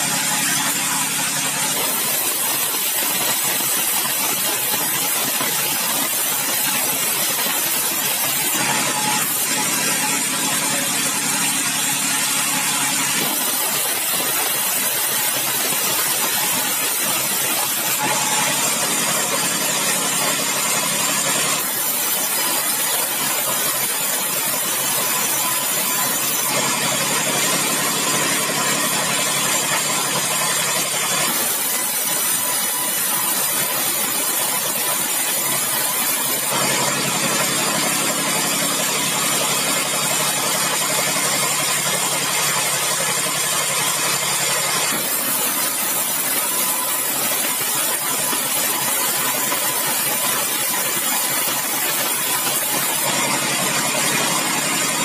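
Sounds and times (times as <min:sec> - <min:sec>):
band saw sawing wood: 0:00.0 - 0:55.0.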